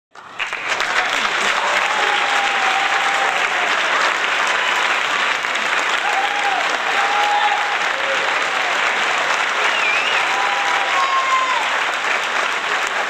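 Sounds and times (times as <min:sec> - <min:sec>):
crowd applauding: 0:00.1 - 0:13.0.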